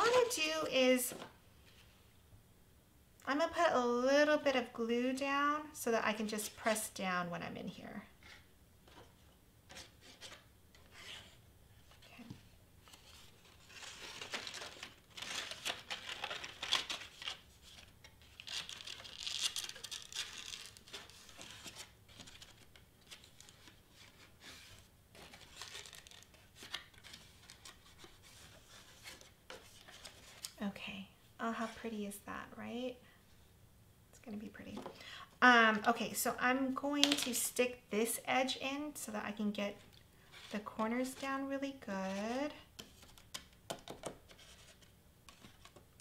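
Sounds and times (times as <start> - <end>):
cardstock rustling: 8.2 - 30.6, 37.0 - 37.4.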